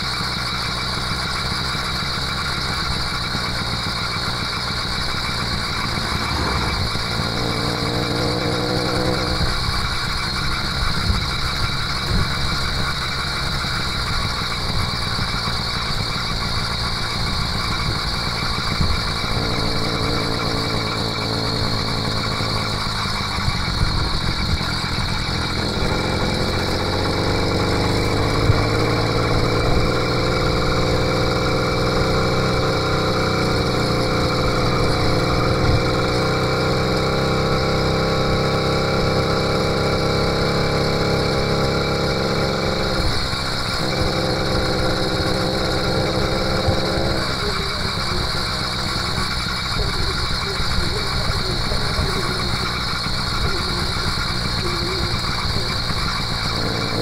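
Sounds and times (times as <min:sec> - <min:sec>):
two-stroke bicycle engine running: 0:00.0 - 0:57.0.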